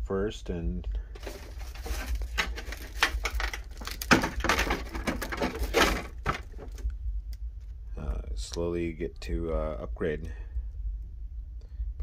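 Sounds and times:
plastic wrapping crinkling: 0:01.1 - 0:06.9.

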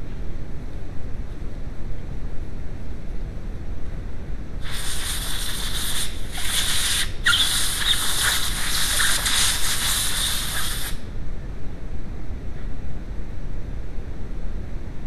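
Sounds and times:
compressed air hissing: 0:04.6 - 0:11.1.

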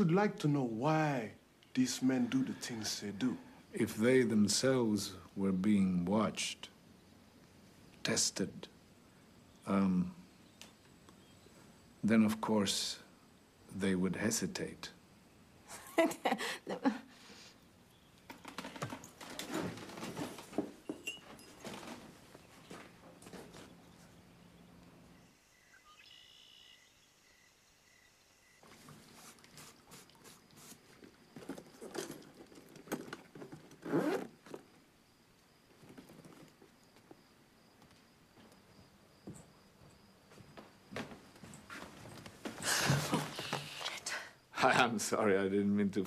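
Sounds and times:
footsteps walking away: 0:18.3 - 0:24.9, 0:35.7 - 0:43.9.

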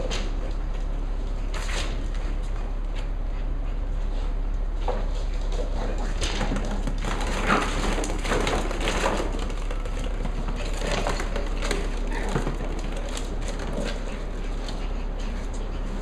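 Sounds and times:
plastic balls clattering: 0:06.2 - 0:13.9.

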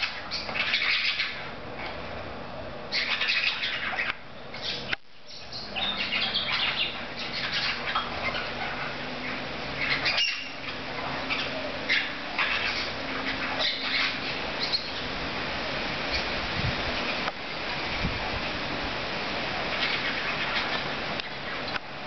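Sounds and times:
parrots squawking and chirping: 0:00.0 - 0:02.0, 0:02.9 - 0:15.2, 0:16.0 - 0:16.4, 0:19.5 - 0:21.8.

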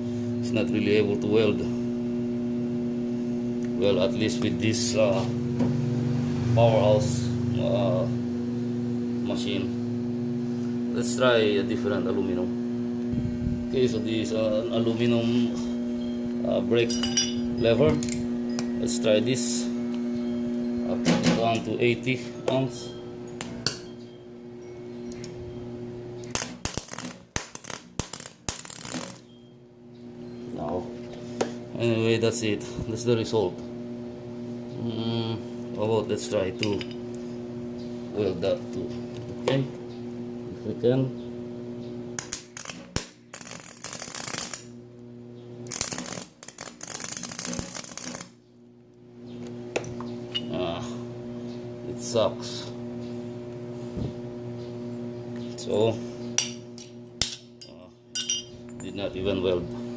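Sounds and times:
low electrical hum: 0:00.0 - 0:59.9
welder hum: 0:24.5 - 0:39.7, 0:40.6 - 0:48.5
welding arc crackling: 0:26.3 - 0:29.3, 0:42.2 - 0:44.8, 0:45.6 - 0:48.4.

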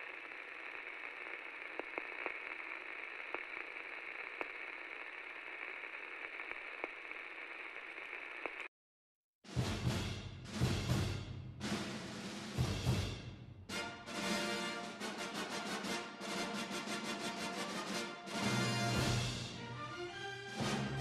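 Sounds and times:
faint clicks: 0:00.0 - 0:08.7.

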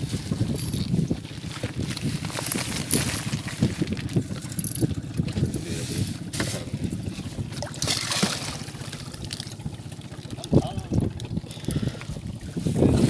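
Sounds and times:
water sloshing against hull: 0:00.0 - 0:13.0
wind buffeting microphone: 0:00.0 - 0:13.0
fish splashing at surface: 0:07.5 - 0:10.5.

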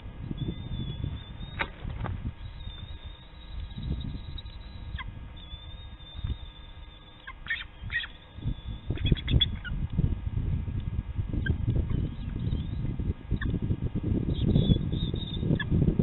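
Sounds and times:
eagle chirping calls: 0:00.0 - 0:09.8, 0:11.4 - 0:13.6, 0:14.3 - 0:15.8
low background rumble: 0:00.0 - 0:16.0.

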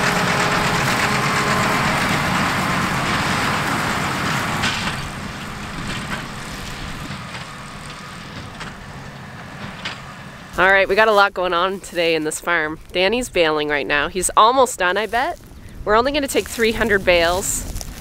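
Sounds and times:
baler mechanical clatter: 0:00.0 - 0:11.2
tractor engine hum: 0:00.0 - 0:18.0.

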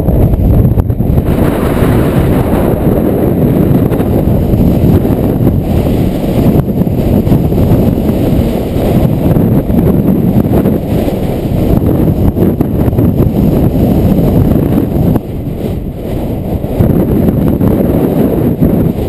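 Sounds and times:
strong wind buffeting microphone: 0:00.0 - 0:19.0.

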